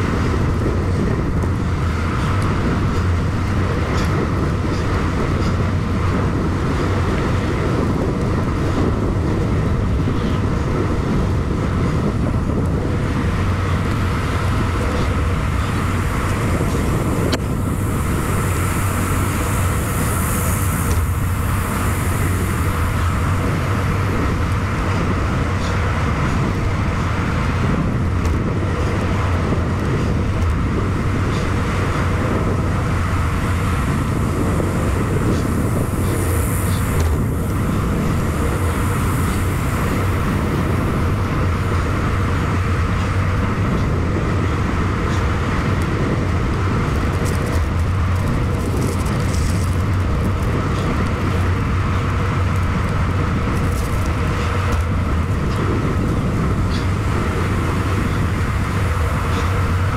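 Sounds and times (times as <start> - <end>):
bicycle tyre noise on pavement: 0.0 - 59.9
wind rush on microphone: 0.0 - 59.9.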